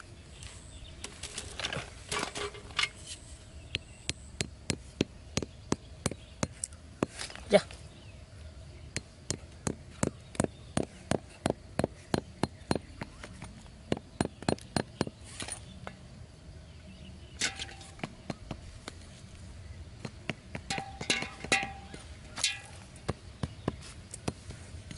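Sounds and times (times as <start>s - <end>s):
knife tapping stakes into dirt: 20.0s - 24.9s.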